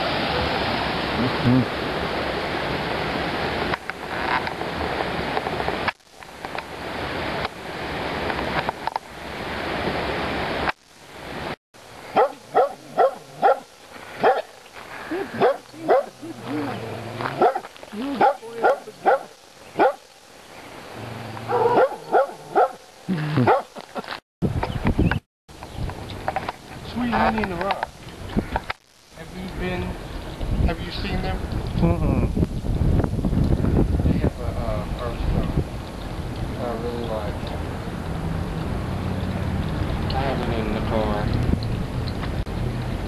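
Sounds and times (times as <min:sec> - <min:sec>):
dog barking: 0:12.1 - 0:14.5, 0:15.1 - 0:16.4, 0:17.3 - 0:20.0, 0:21.5 - 0:22.8, 0:23.4 - 0:23.8.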